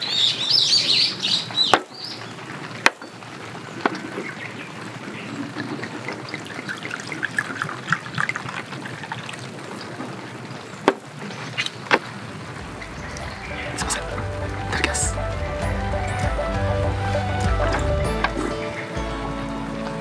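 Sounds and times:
bird chirping: 0.0 - 2.4, 12.6 - 19.2
liquid pouring from bottle: 6.2 - 9.6.

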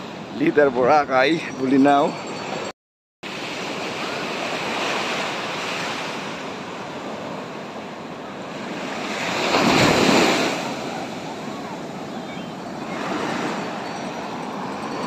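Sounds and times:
small waves washing: 3.3 - 14.9
wave breaking on sand: 8.6 - 12.0.

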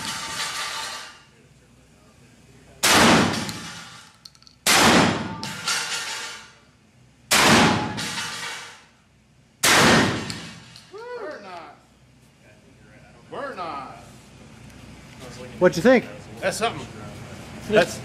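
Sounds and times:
shotgun shots echoing indoors: 2.8 - 3.9, 4.6 - 5.9, 7.3 - 8.7, 9.6 - 10.8.

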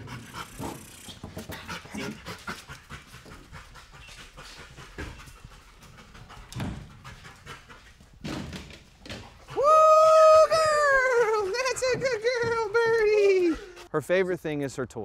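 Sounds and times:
dog panting: 0.0 - 8.3, 11.0 - 13.9.

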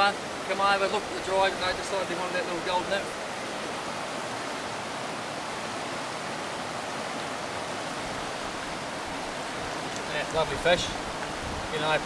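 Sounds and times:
water rushing over rocks: 0.0 - 12.0.

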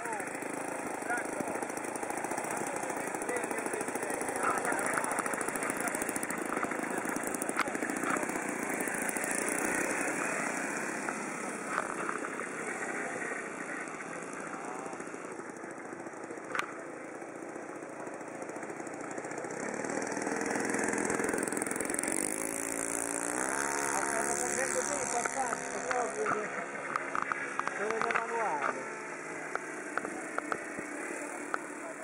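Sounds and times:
model plane engine in flight: 0.0 - 32.0.

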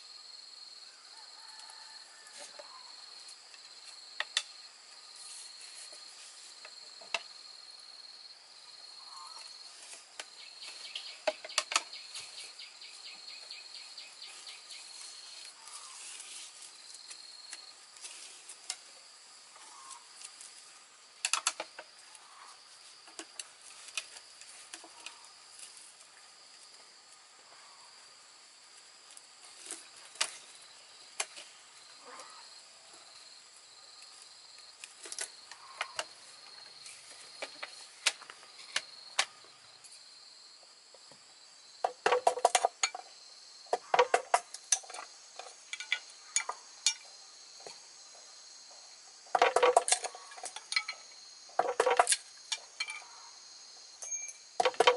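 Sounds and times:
insects chirring: 0.0 - 54.9
bamboo pieces clicking and knocking: 3.5 - 4.6, 10.2 - 12.0, 21.2 - 22.0, 41.8 - 43.1, 43.7 - 47.8, 49.2 - 53.0, 54.6 - 54.9.

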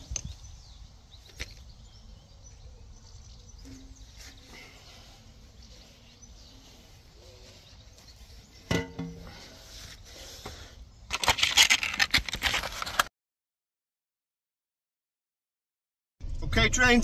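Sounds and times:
metal manhole cover clank: 3.6 - 4.8, 8.7 - 9.4.

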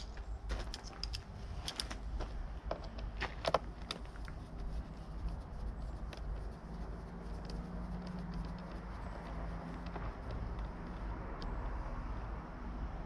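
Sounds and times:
low background rumble: 0.0 - 13.0.

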